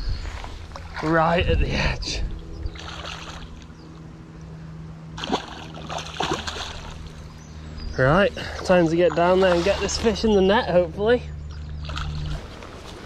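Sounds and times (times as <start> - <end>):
steady low hum: 0.0 - 13.0
water splashing and sloshing: 2.4 - 3.8, 5.1 - 7.4, 8.4 - 10.8, 11.5 - 13.0.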